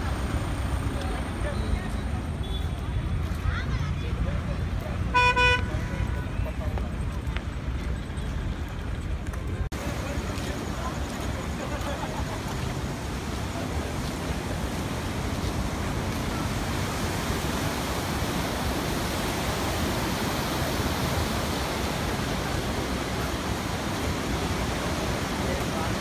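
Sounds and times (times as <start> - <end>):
wind: 0.0 - 26.0
sea waves washing: 9.7 - 26.0.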